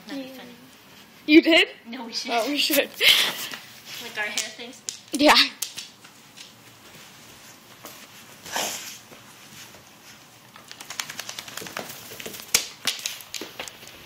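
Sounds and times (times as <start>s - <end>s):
dog claws clicking on wooden floor: 4.2s - 6.6s, 10.5s - 14.0s.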